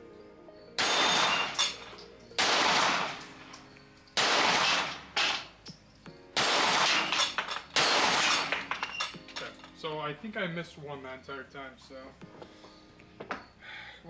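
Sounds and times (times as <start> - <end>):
pistol shots: 0.8 - 3.4, 4.2 - 5.5, 6.4 - 8.7
steel targets ringing: 0.8 - 9.7.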